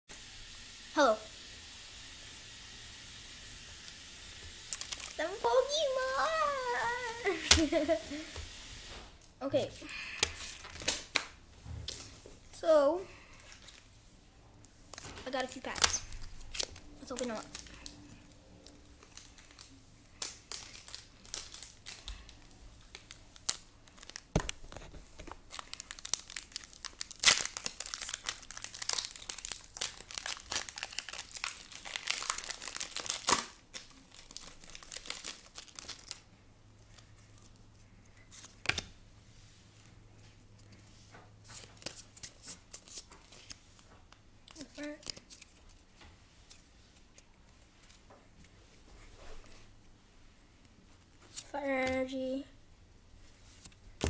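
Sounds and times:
wrappers crinkling and tearing: 3.8 - 8.3, 10.3 - 11.2, 14.9 - 38.8, 41.5 - 48.0.

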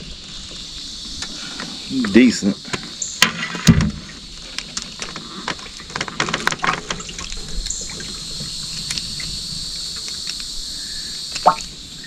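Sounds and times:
high buzz of insects: 0.0 - 12.0
water drips: 6.6 - 10.6, 11.3 - 11.8.

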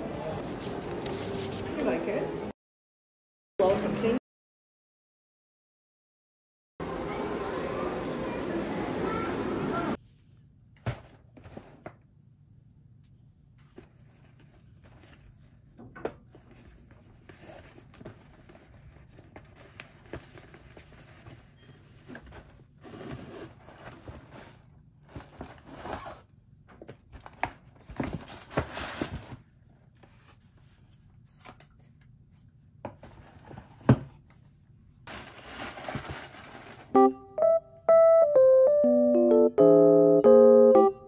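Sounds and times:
paper bag rustling: 0.3 - 1.8, 35.1 - 37.0.

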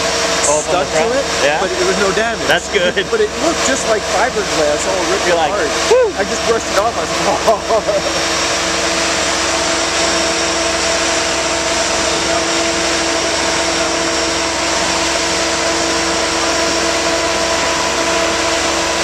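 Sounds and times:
hydraulic whining tones: 0.0 - 19.0
machine engine droning: 0.0 - 19.0.

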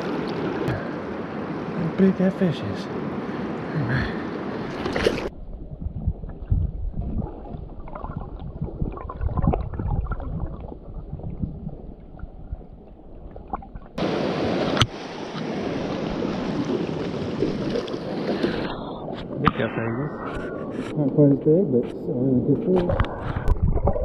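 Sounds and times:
muffled underwater gurgling: 5.4 - 12.8
river water rushing: 14.0 - 19.1.

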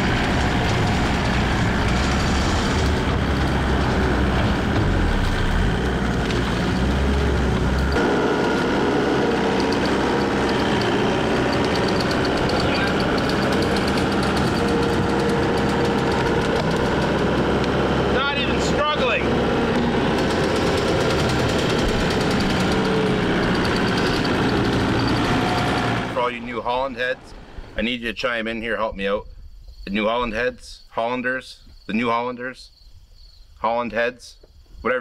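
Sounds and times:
higher engine hum: 0.0 - 27.8
diesel engine running: 0.0 - 27.9.

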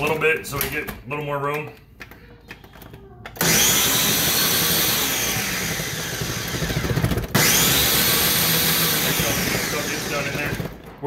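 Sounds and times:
blender motor whining: 3.4 - 10.9.

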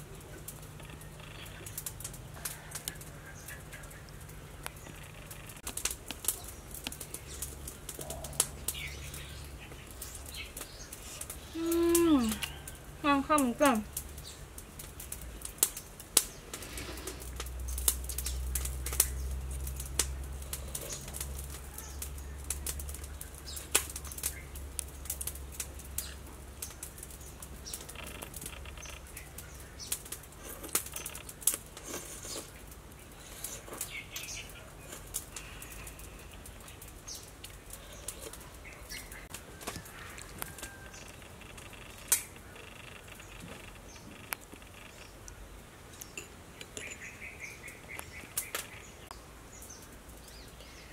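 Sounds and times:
faint bird chirps: 27.7 - 30.0, 33.2 - 45.4, 46.0 - 50.9.

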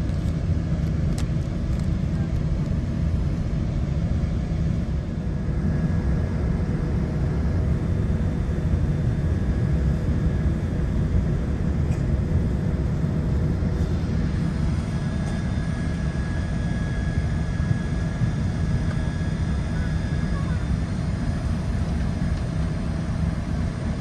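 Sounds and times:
airliner cabin rumble and hiss: 0.0 - 24.0
faint high whine: 0.0 - 24.0.

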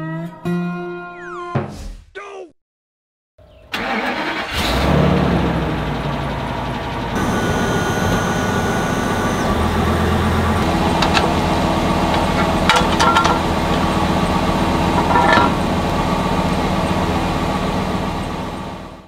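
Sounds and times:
motorhome engine idling: 5.4 - 19.0
metal jack stand clanking: 10.6 - 14.0, 14.9 - 15.7.

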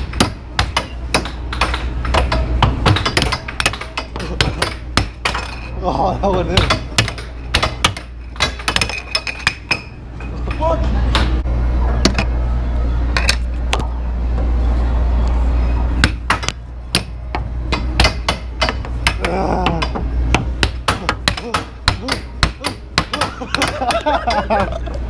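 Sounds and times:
air hockey puck clacking: 0.0 - 5.7, 6.3 - 11.4, 16.0 - 24.8
low steady hum: 0.0 - 25.0.

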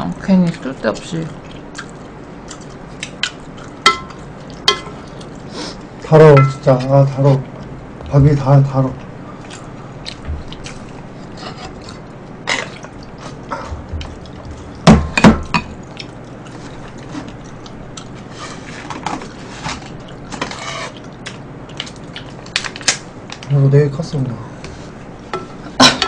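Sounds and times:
utensils knocking on pot and bowls: 3.8 - 5.0, 6.2 - 6.7, 13.7 - 15.8.

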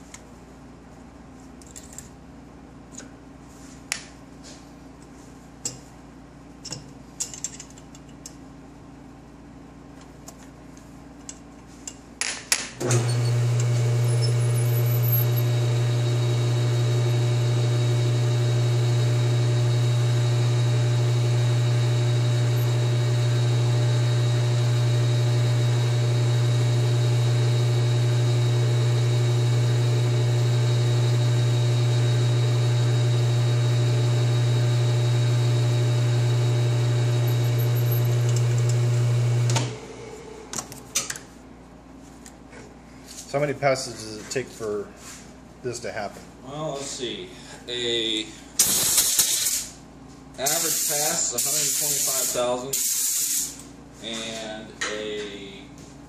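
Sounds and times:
lathe motor humming: 12.9 - 40.0.

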